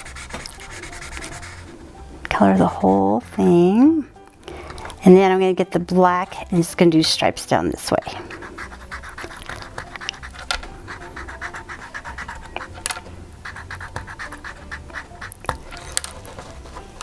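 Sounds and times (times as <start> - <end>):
marker scratching on wood: 0.0 - 1.7, 8.0 - 17.0
marker tip ticking on wood: 8.9 - 15.9.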